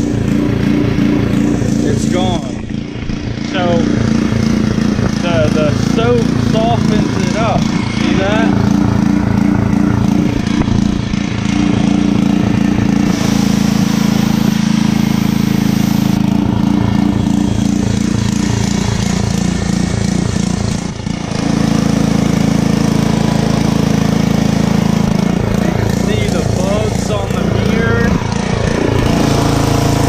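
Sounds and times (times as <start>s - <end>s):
pressure washer engine running: 0.0s - 30.0s
water spraying on truck: 8.7s - 30.0s.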